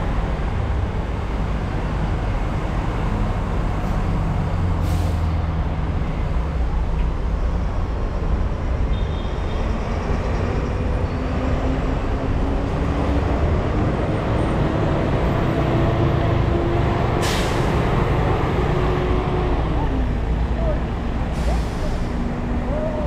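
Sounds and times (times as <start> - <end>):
heavy vehicle engine running: 10.4 - 23.0.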